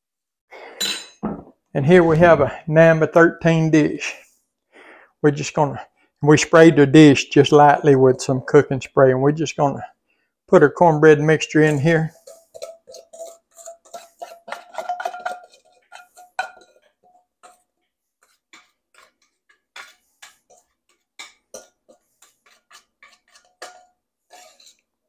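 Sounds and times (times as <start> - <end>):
ceramic bowl clinking on cookware: 0.8 - 1.3, 11.7 - 17.7, 19.8 - 24.7.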